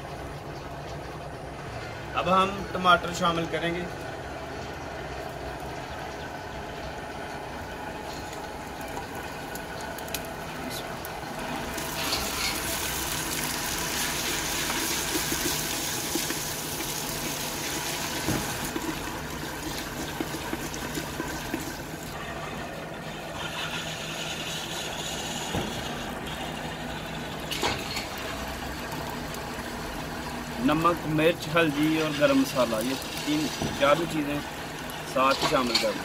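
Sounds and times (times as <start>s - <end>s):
tomatoes sizzling in hot oil: 11.4s - 22.2s, 27.8s - 36.0s.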